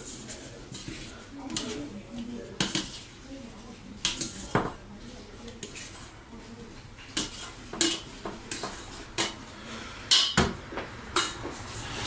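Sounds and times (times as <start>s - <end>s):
metal bowl clinking and scraping: 0.0s - 3.2s, 4.0s - 6.1s, 7.0s - 9.5s.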